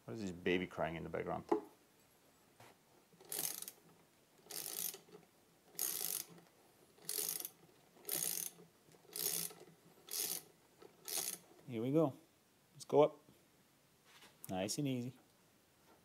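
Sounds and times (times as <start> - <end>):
ratchet wrench clicking: 3.2 - 3.8, 4.4 - 6.4, 7.0 - 11.4.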